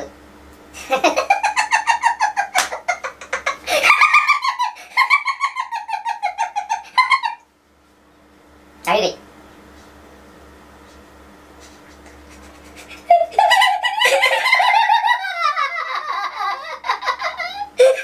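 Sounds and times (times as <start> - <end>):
man laughing loudly: 0.8 - 7.4, 11.8 - 18.0.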